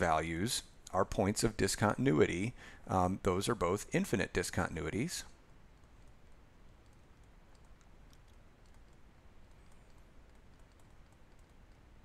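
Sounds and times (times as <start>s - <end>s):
low room hiss: 0.0s - 12.0s
stylus tapping on tablet screen: 5.7s - 11.9s.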